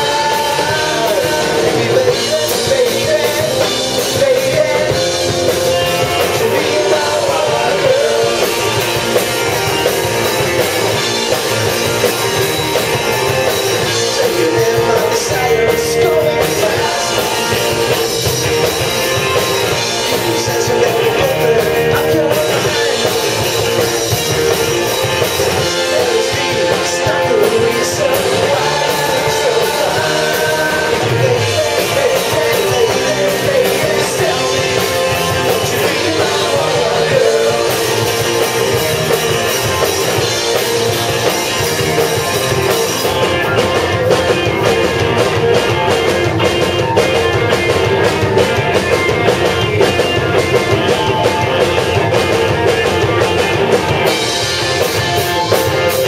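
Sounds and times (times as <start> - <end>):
person singing lead vocal: 0.0 - 11.2, 12.8 - 56.0
bass guitar: 0.0 - 56.0
distorted electric guitars: 0.0 - 56.0
drums: 0.0 - 56.0.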